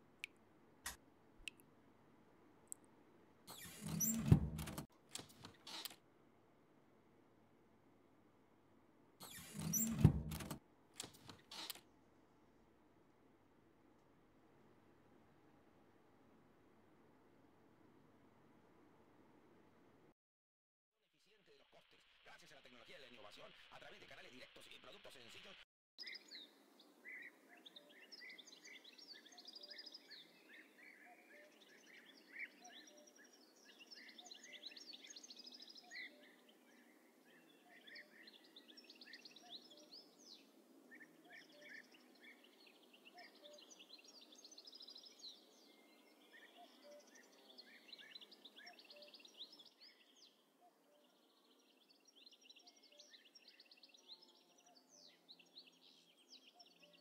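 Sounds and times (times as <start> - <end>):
small birds chirping: 3.5 - 6.0, 9.2 - 11.8, 22.6 - 57.0.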